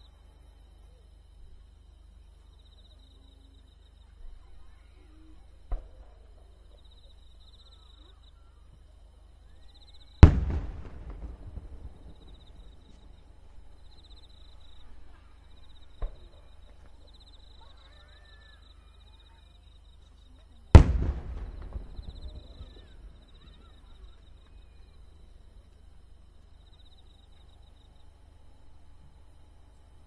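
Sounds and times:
insects chirping: 0.0s - 30.0s
firework shell burst: 10.2s - 13.2s, 20.8s - 24.1s.

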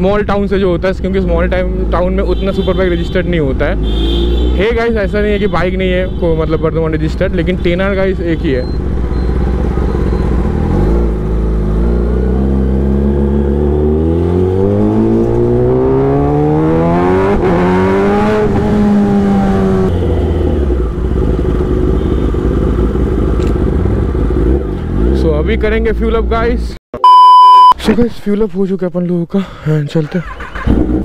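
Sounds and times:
motorcycle engine accelerating: 8.8s - 25.3s.

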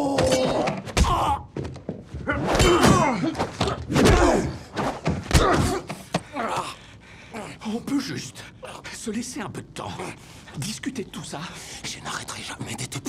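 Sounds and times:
people grunting and groaning: 0.0s - 7.6s.

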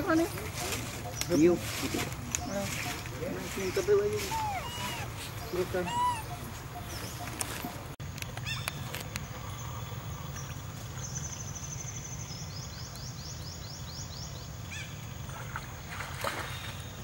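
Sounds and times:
bird trilling and chirping: 0.1s - 8.8s.

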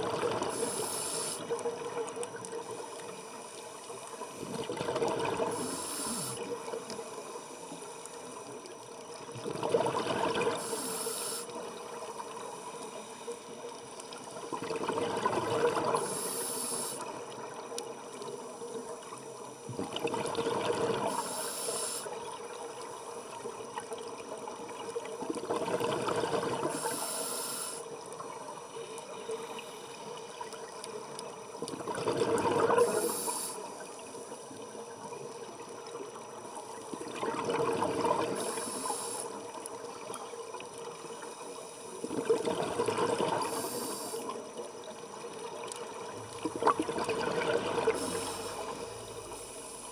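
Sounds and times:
regulator high hiss: 0.5s - 1.4s, 5.5s - 6.4s, 10.6s - 11.5s, 16.0s - 17.0s, 21.1s - 22.1s, 26.7s - 27.8s, 32.8s - 33.7s, 43.5s - 44.3s
bubbling exhaled air underwater: 4.4s - 6.8s, 9.2s - 11.0s, 14.4s - 17.3s, 19.7s - 21.4s, 25.1s - 27.4s, 31.6s - 33.7s, 36.9s - 39.1s, 42.0s - 44.6s, 45.8s - 49.8s.

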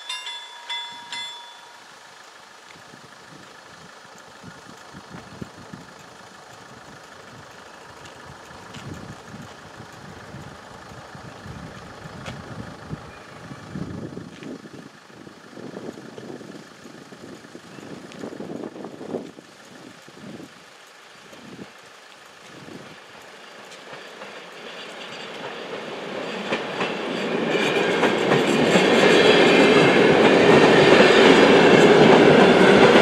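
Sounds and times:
level crossing warning bell: 0.0s - 2.5s.

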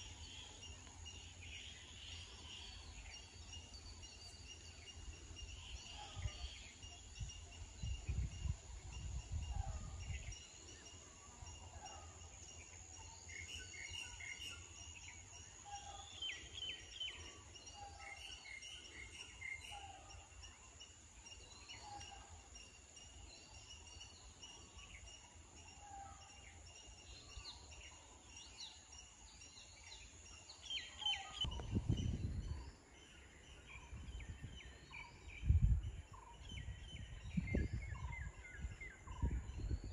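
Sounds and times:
wind rumbling on microphone: 5.1s - 10.7s, 31.4s - 39.9s.

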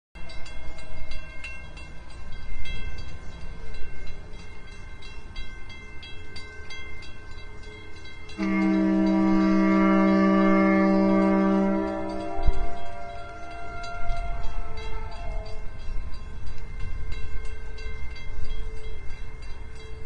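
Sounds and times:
ferry horn blast: 8.4s - 15.6s.

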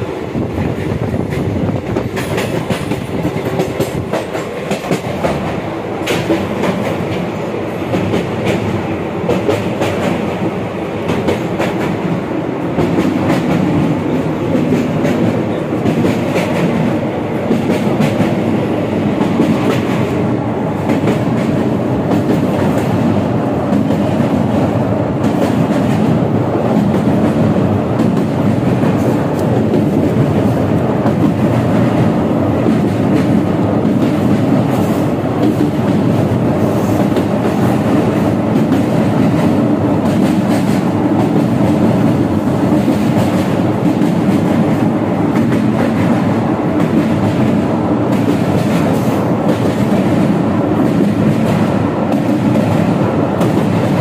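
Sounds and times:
train interior rumble: 0.0s - 54.0s
wheels clacking over rail joints: 0.6s - 7.3s.

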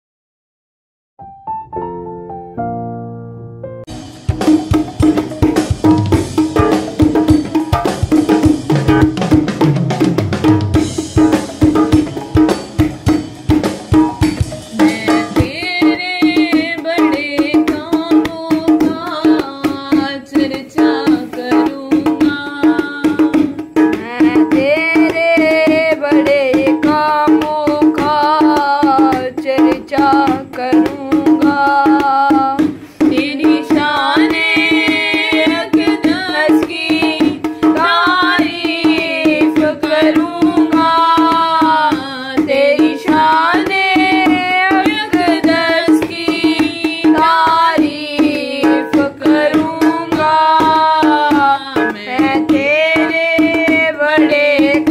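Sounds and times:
tabla strokes: 3.9s - 54.9s
person singing devotional song: 14.6s - 54.9s.

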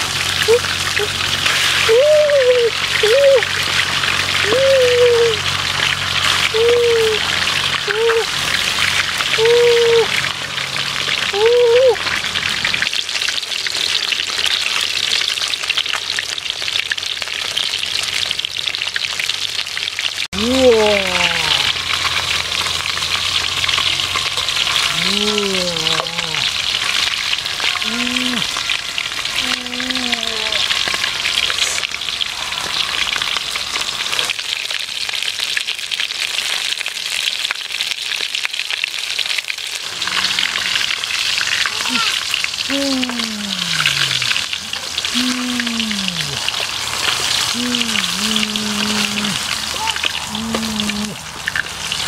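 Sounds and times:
fish sizzling in hot oil: 0.0s - 20.3s, 21.3s - 25.1s, 26.0s - 42.7s, 46.4s - 47.6s, 49.4s - 52.0s
short pitched calls: 41.8s - 46.5s.

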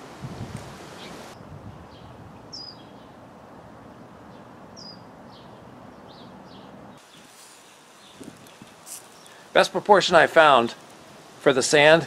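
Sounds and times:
outdoor background noise: 0.0s - 12.0s
small birds chirping: 1.0s - 3.2s, 4.3s - 9.6s.

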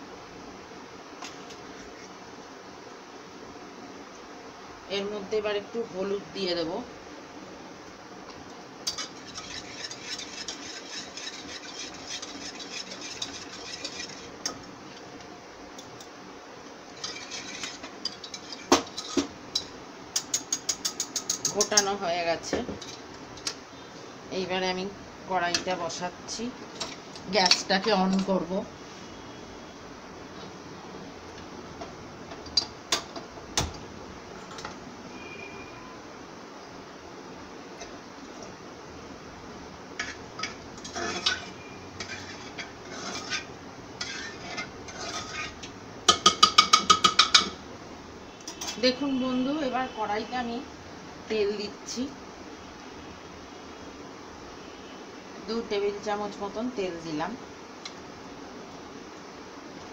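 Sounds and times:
whisk clicking against metal pot: 8.9s - 14.3s.

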